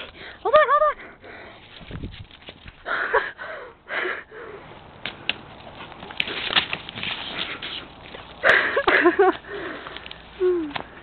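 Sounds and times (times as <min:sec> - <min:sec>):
envelope crackling: 0:05.2 - 0:08.4.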